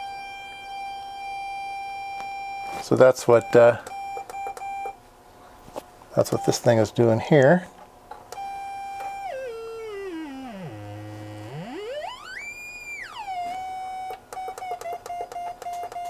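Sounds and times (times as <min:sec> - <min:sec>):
synthesizer square-wave tone gliding: 0:08.4 - 0:15.2.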